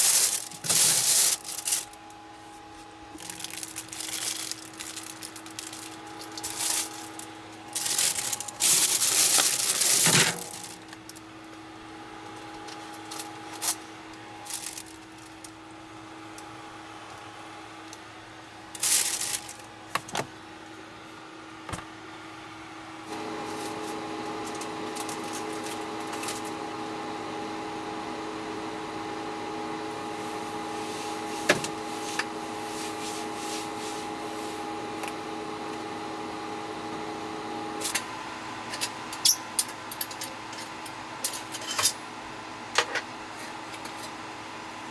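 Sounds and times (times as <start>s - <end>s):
bag rustling and rubbing: 0.0s - 2.0s, 3.2s - 10.8s
fridge mechanical hum: 0.0s - 44.9s.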